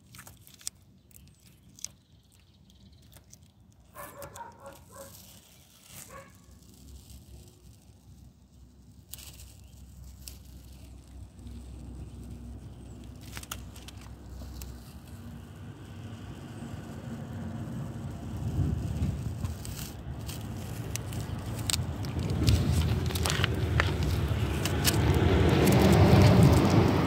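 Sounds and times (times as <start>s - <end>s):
tape snapping: 0.0s - 7.8s, 18.5s - 27.0s
masking tape peeling: 0.0s - 27.0s
low engine rumble: 0.3s - 27.0s.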